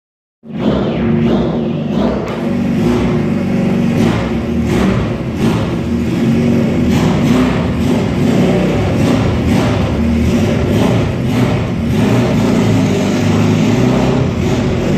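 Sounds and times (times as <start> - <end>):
motorcycle engine running: 0.5 - 14.9.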